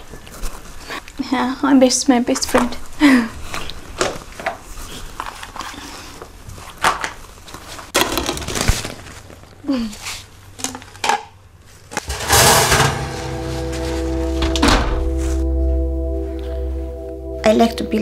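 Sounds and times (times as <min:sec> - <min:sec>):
oven door and tray clattering: 0:12.1 - 0:13.8
loud noisy scrape: 0:12.1 - 0:14.4.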